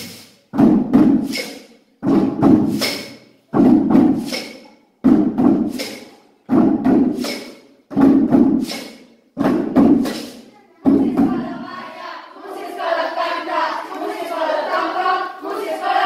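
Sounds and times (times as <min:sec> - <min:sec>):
drumming on household objects: 0:00.0 - 0:11.6.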